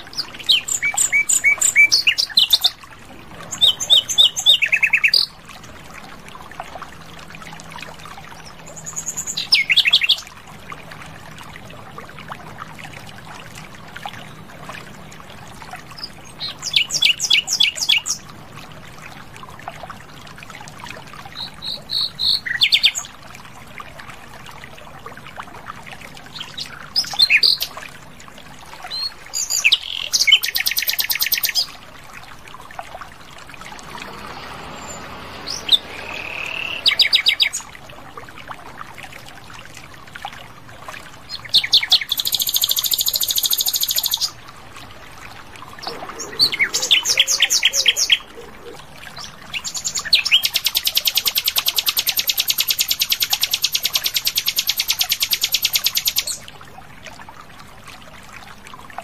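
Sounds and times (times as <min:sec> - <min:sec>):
nightingale singing: 0:34.9 - 0:37.7, 0:45.8 - 0:48.8.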